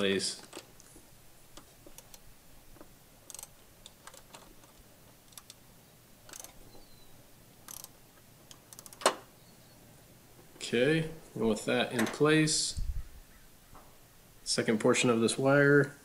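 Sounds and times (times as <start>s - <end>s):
hand tool clicking on metal clamp: 3.3s - 5.6s, 6.3s - 6.6s, 7.7s - 7.9s.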